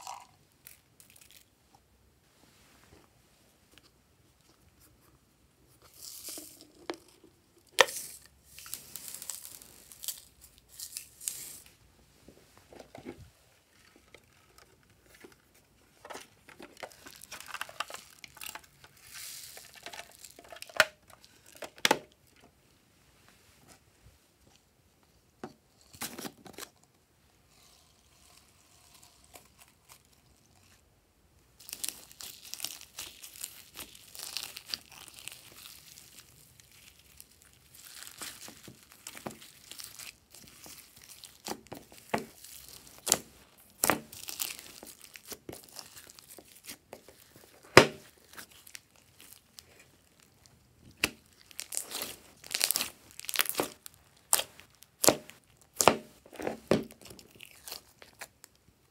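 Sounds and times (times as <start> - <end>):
slime crackling and popping: 7.8 - 11.4, 31.6 - 58.6.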